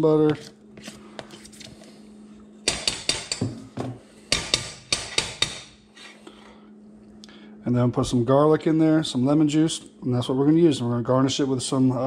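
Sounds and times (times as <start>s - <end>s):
faint steady hum: 0.0s - 12.0s
utensil knocking on saucepan: 2.7s - 5.7s.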